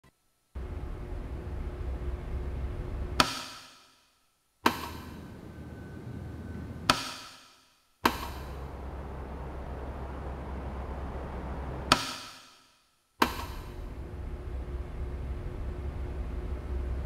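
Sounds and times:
steady low rumble: 0.6s - 3.2s, 5.1s - 6.9s, 8.3s - 12.0s, 13.7s - 17.0s.

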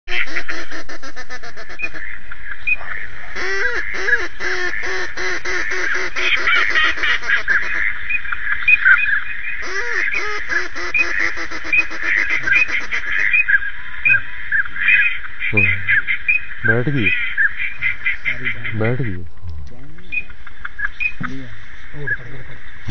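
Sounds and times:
ducks quacking loudly: 0.1s - 22.9s
waterfowl chattering calls: 0.1s - 22.9s.

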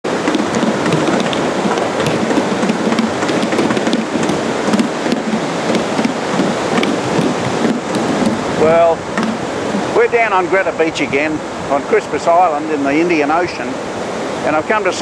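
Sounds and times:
surf washing: 0.0s - 15.0s
sticks drumming on plastic cans: 0.2s - 8.5s, 9.2s - 9.9s.

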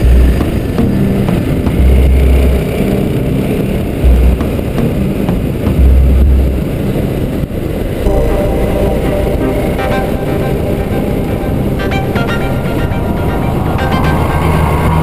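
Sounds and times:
wind buffeting microphone: 0.0s - 8.5s.

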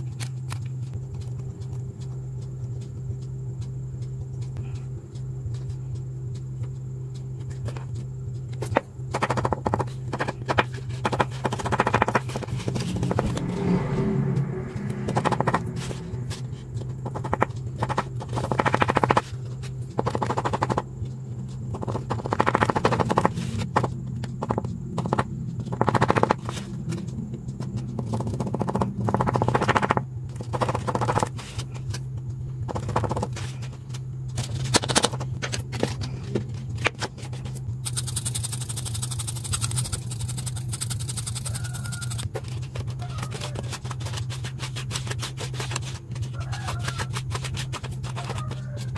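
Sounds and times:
low hum: 0.0s - 48.9s
stiff paper crackling and scraping: 33.0s - 48.9s.

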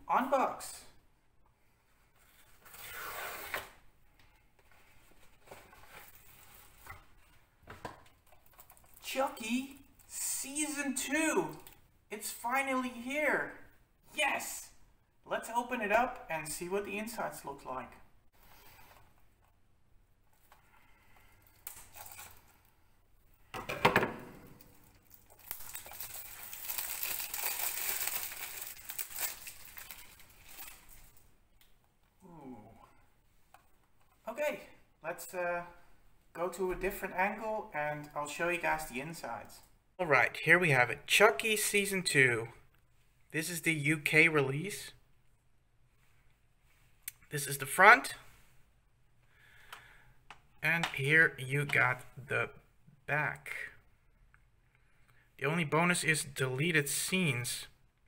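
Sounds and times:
paper rustling: 4.6s - 9.0s, 24.6s - 31.3s
plastic wrap ripping: 24.5s - 31.2s
plastic wrap crinkling: 24.5s - 31.4s
envelope tearing: 25.1s - 31.2s.

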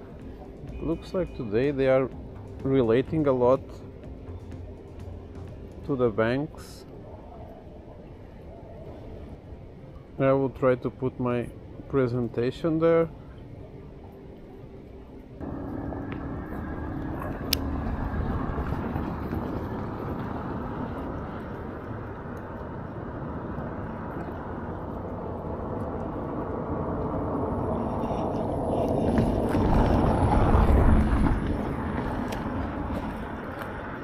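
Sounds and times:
low rushing noise: 15.4s - 34.0s.

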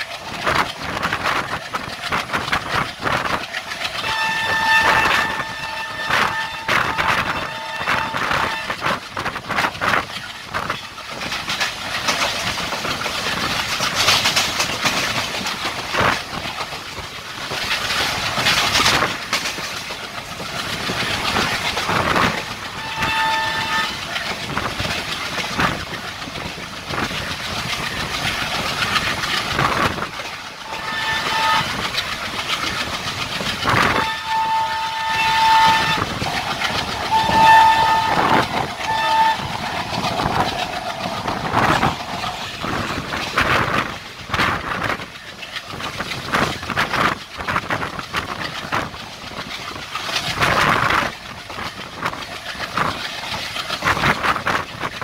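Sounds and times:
train wheels clattering: 0.0s - 55.0s
train horn blasts: 4.0s - 9.0s, 22.7s - 24.1s, 30.6s - 31.9s, 33.8s - 41.9s
rushing air: 35.7s - 45.1s.

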